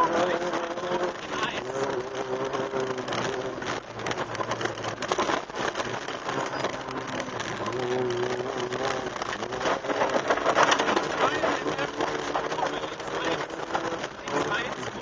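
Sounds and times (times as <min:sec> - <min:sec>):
gravel pattering against car: 0:00.0 - 0:15.0
rally car engine running hard: 0:00.0 - 0:15.0.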